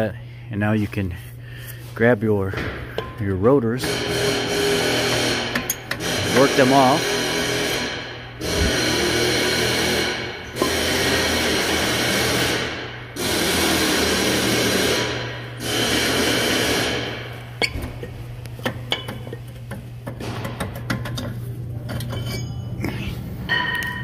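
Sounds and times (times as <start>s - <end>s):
steady low hum: 0.0s - 24.0s
power tool running: 3.8s - 17.5s.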